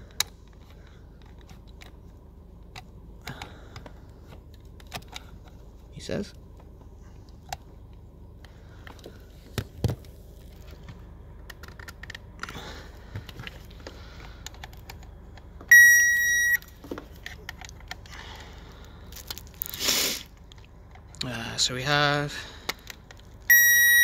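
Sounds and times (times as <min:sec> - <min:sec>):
circuit tester beep: 0:15.7 - 0:16.7, 0:23.5 - 0:24.0.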